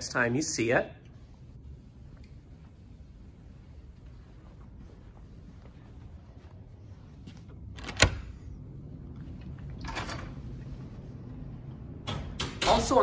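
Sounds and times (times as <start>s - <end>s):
footsteps: 2.0s - 7.8s.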